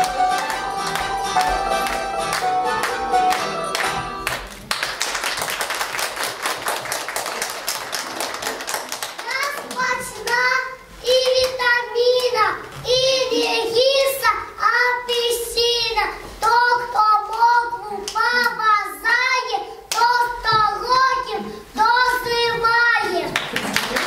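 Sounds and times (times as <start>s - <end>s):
girl singing: 9.4s - 23.3s.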